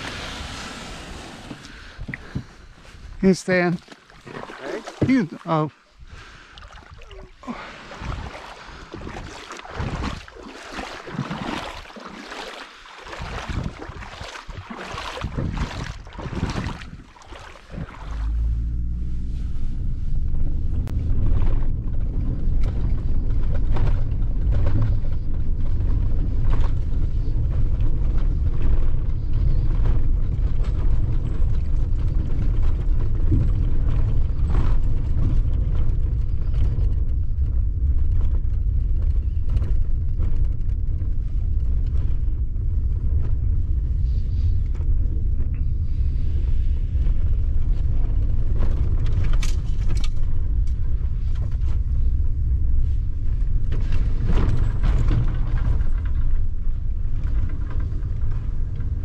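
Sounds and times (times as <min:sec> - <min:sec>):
engine and tyre rumble: 0:13.4 - 0:59.0
knocks and rattles over bumps: 0:20.5 - 0:43.6, 0:47.0 - 0:59.0.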